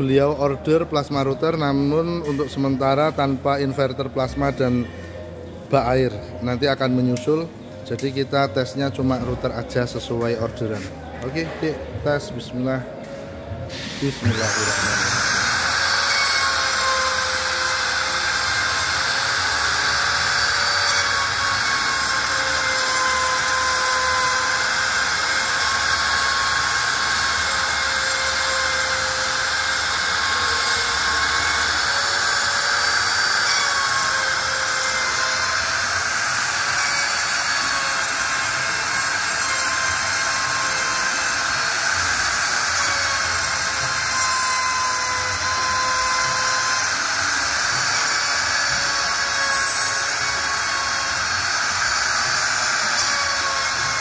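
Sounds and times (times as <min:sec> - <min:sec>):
router engraving wood: 0:13.7 - 0:54.0.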